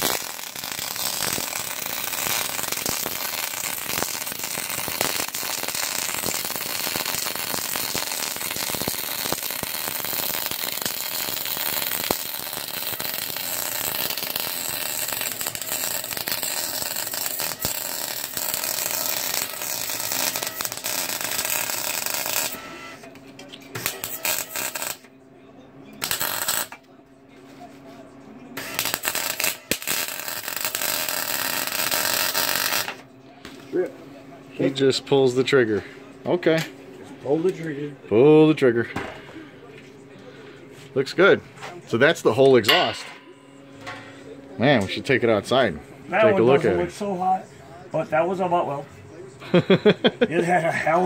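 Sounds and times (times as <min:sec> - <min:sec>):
welding arc crackling: 0:00.0 - 0:22.8, 0:23.7 - 0:25.1, 0:26.0 - 0:26.8, 0:28.6 - 0:33.0.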